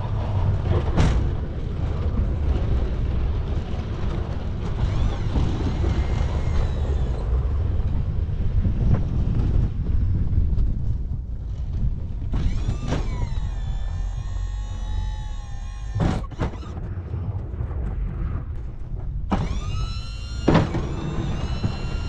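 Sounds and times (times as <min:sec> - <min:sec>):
engine low rumble: 0:00.0 - 0:22.0
hydraulic whine: 0:04.1 - 0:08.4, 0:12.2 - 0:17.0, 0:19.3 - 0:22.0.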